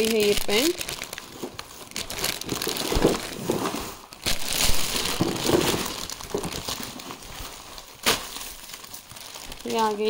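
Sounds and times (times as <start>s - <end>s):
packaging crinkling and rustling: 0.0s - 10.0s.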